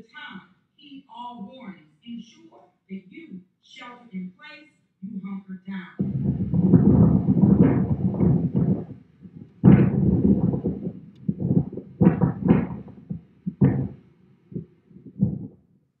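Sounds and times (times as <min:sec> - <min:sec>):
wind gusts buffeting microphone: 0:06.0 - 0:15.5.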